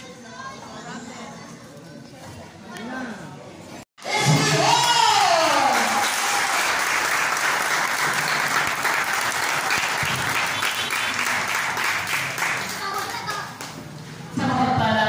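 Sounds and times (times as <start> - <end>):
crowd applauding: 4.3 - 13.8
loud drawn-out call: 10.0 - 11.4.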